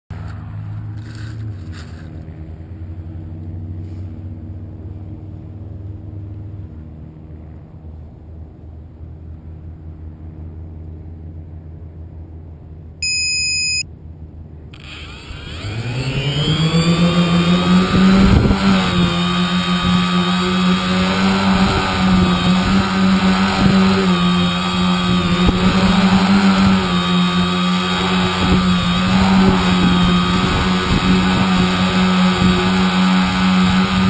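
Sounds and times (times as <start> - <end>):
low steady hum: 6.6 - 17.6
drone motors whining: 13.0 - 13.8, 14.8 - 34.0
electronic beep: 13.0 - 13.8.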